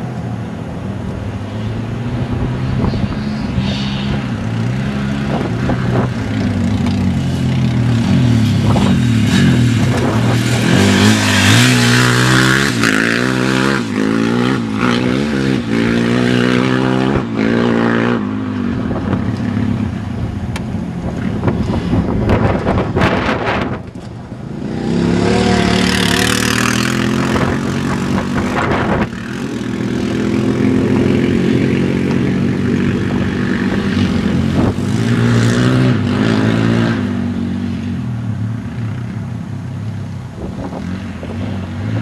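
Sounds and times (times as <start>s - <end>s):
quad engine revving: 2.3s - 19.9s, 24.4s - 37.4s.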